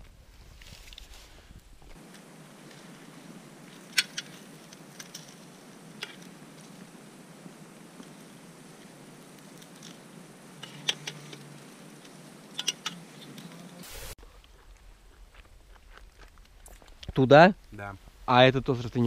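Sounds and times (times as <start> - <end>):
steady hiss: 0.6 - 15.0
static noise burst: 2.0 - 14.2.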